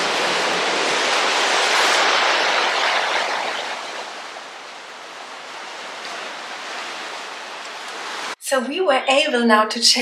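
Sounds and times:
waves breaking on rocky shore: 0:00.0 - 0:08.4.

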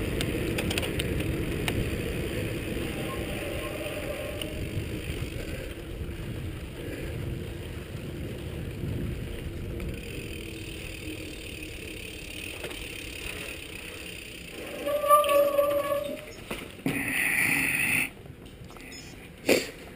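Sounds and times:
bicycle drivetrain rattle: 0:00.0 - 0:17.2
bike tyres rumbling on concrete: 0:00.0 - 0:18.7.

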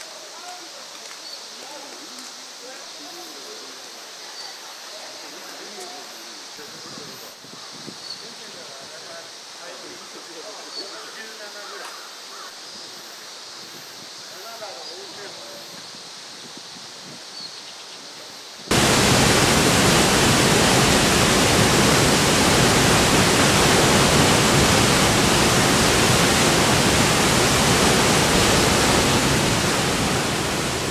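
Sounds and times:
waterfall rushing: 0:18.7 - 0:30.9.

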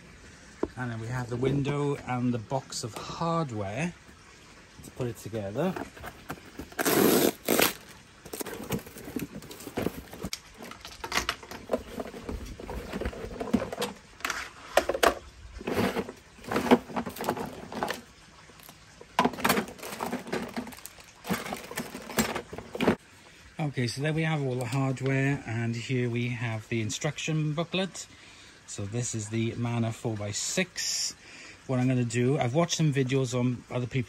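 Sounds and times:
cardboard flaps rustling: 0:05.7 - 0:10.4
plastic bag rustling: 0:05.7 - 0:11.0, 0:15.6 - 0:23.0
blade slitting packing tape: 0:06.7 - 0:07.8
plastic parts knocking and clattering: 0:07.6 - 0:23.0.

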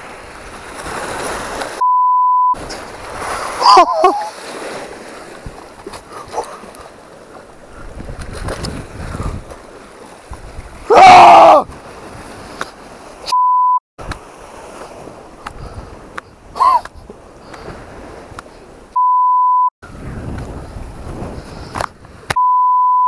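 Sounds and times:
sea water washing over rocks: 0:00.0 - 0:01.8, 0:02.6 - 0:10.9, 0:14.0 - 0:16.6
censor beep: 0:01.8 - 0:02.6, 0:13.3 - 0:13.8, 0:19.0 - 0:19.7, 0:22.4 - 0:23.0
person yelling: 0:03.6 - 0:04.3, 0:10.9 - 0:11.7.

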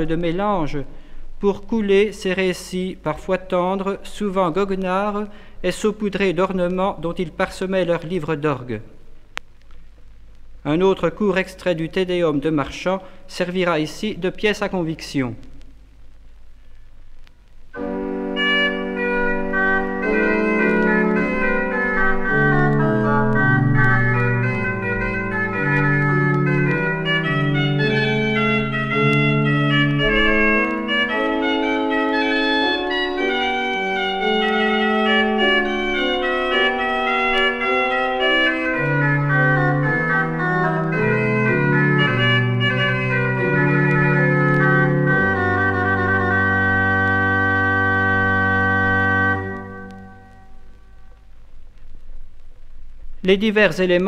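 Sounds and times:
pipe organ baroque solo: 0:17.7 - 0:51.3.

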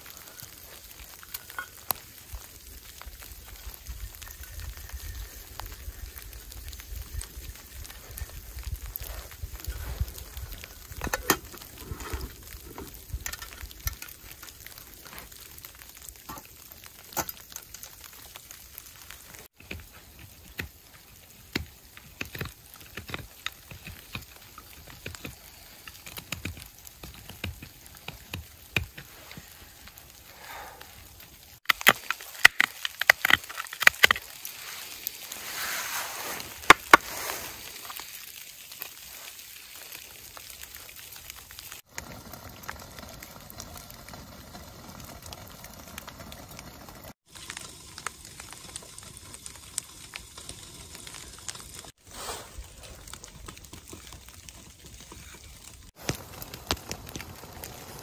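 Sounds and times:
wood stove crackling: 0:00.0 - 0:58.0
knife carving wood: 0:19.5 - 0:29.1.

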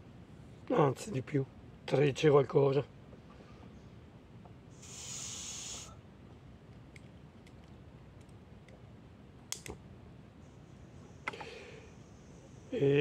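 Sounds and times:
gas stove hiss: 0:04.7 - 0:06.0
metallic clicks of burner: 0:09.5 - 0:09.8.

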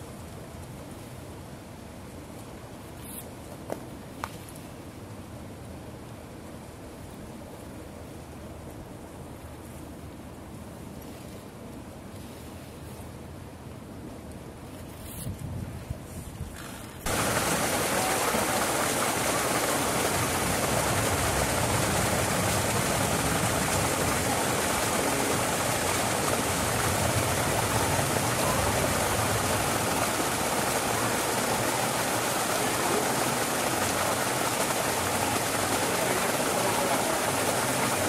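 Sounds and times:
steady rushing noise: 0:16.9 - 0:38.0.

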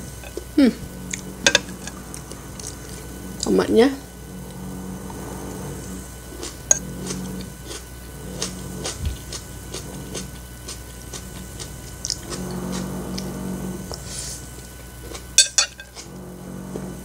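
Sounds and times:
wet chewing clicks: 0:06.4 - 0:12.5.

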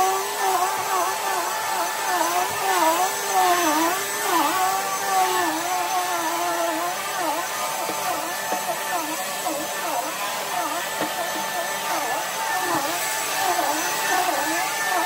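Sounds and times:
vacuum cleaner running: 0:00.0 - 0:15.0.

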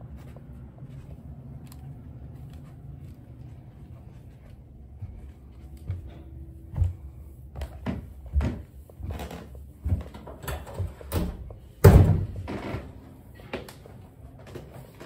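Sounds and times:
scuffing rustle: 0:00.0 - 0:09.1.

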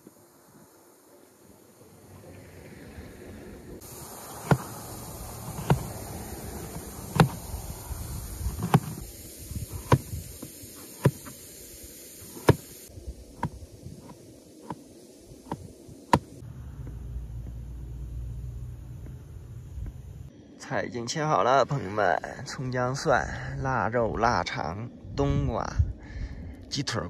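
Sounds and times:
steady low rumble: 0:01.8 - 0:10.7, 0:12.9 - 0:26.7
knife chopping on plastic board: 0:05.5 - 0:05.9, 0:07.1 - 0:07.4.

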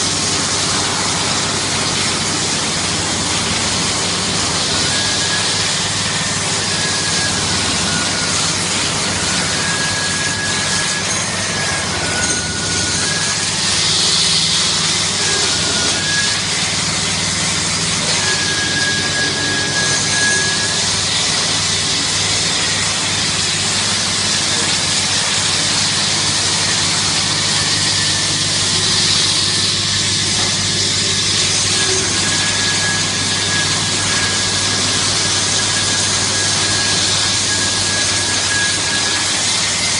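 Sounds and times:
car wash brushes and water spray: 0:00.0 - 0:39.9
faint high whistling tone: 0:04.6 - 0:16.7, 0:18.0 - 0:23.1, 0:27.0 - 0:39.9.

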